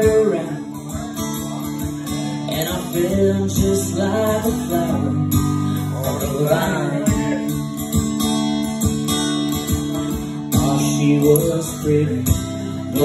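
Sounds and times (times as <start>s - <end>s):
man singing: 0.0s - 8.8s, 9.5s - 13.0s
acoustic guitar strumming: 0.0s - 13.0s.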